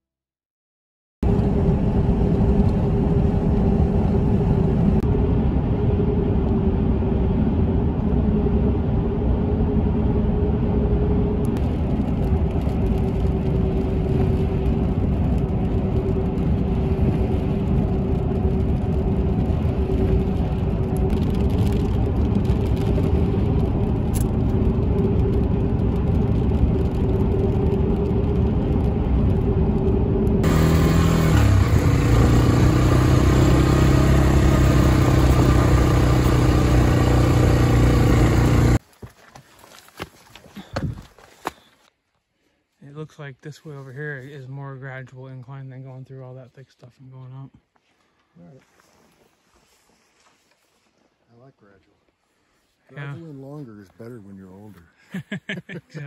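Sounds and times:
tyre and road noise: 0:07.6 - 0:41.9.

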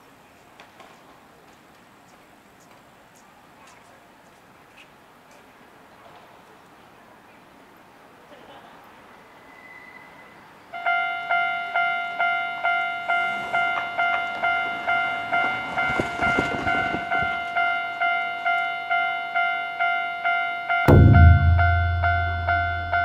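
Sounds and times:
level crossing warning bell ringing: 0:10.8 - 0:23.0.

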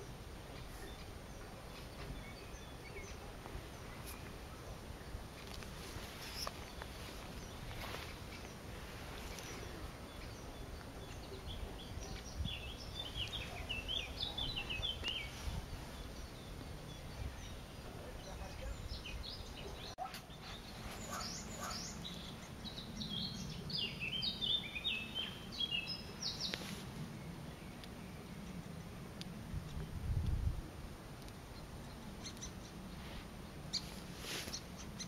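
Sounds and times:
steady background noise: 0:00.0 - 0:35.0
nestling begging calls: 0:00.5 - 0:22.8, 0:31.5 - 0:33.1.

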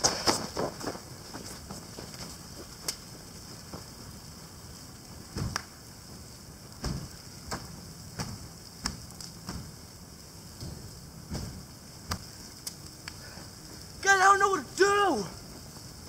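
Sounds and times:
fire crackling and popping: 0:00.0 - 0:16.0.

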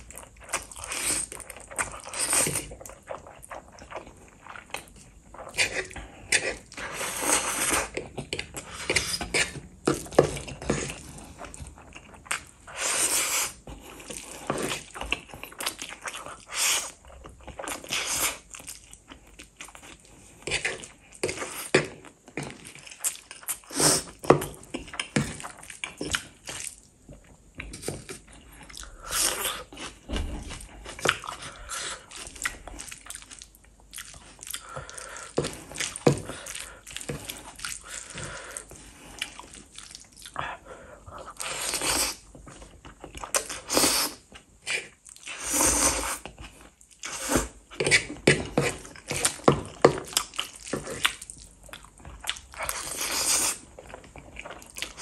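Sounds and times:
wet chewing and smacking: 0:00.0 - 0:55.0
slurping noodles: 0:05.4 - 0:08.0, 0:12.7 - 0:14.9, 0:43.4 - 0:46.2, 0:52.6 - 0:53.7.

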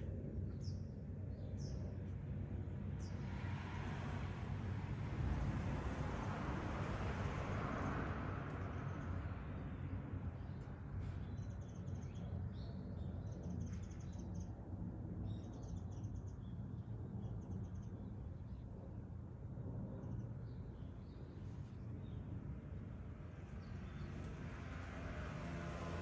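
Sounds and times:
small birds chirping: 0:20.3 - 0:24.4.

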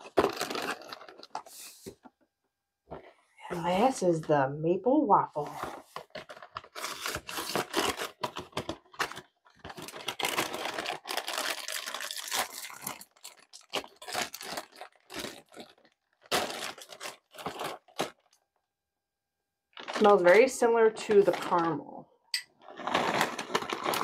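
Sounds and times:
cardboard box tearing: 0:00.0 - 0:01.3, 0:06.3 - 0:12.8
plastic bag crinkling: 0:00.0 - 0:01.8, 0:05.5 - 0:18.4, 0:19.8 - 0:21.9, 0:22.6 - 0:24.0.

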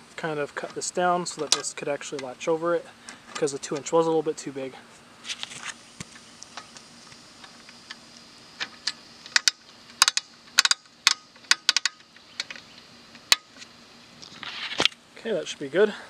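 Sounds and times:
metal clamp clicking and clinking: 0:08.6 - 0:12.6.

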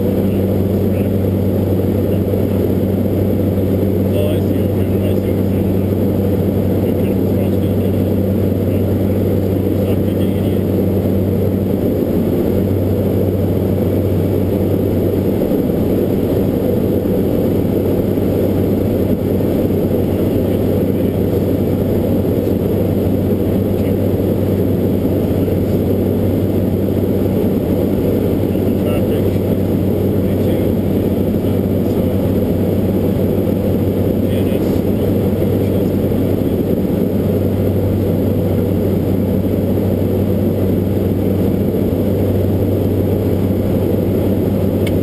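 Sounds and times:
constant low hum: 0:00.0 - 0:45.0
turboprop engine roar: 0:00.0 - 0:45.0.

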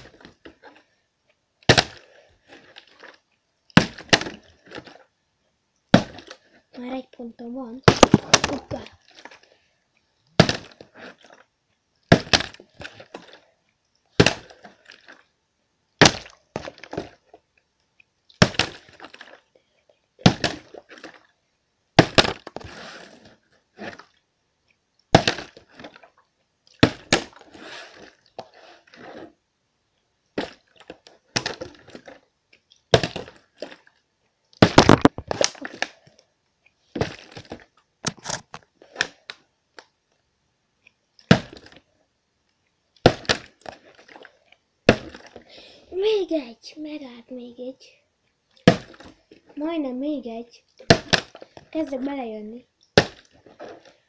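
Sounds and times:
plastic bottle hitting the floor: 0:07.9 - 0:08.8, 0:10.4 - 0:10.8, 0:12.1 - 0:12.6, 0:22.0 - 0:22.7, 0:25.1 - 0:25.6, 0:34.6 - 0:35.9, 0:43.0 - 0:43.6, 0:48.6 - 0:49.2, 0:50.9 - 0:51.4.

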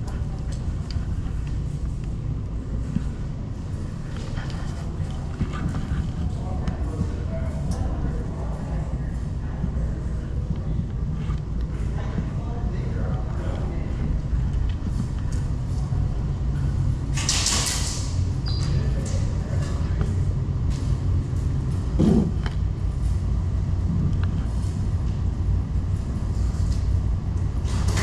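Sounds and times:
low rumble in hall: 0:00.0 - 0:28.0.

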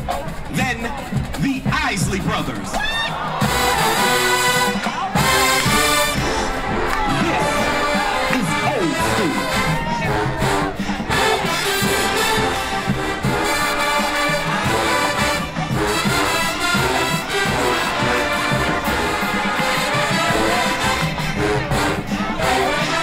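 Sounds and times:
marching band playing: 0:00.0 - 0:23.0.

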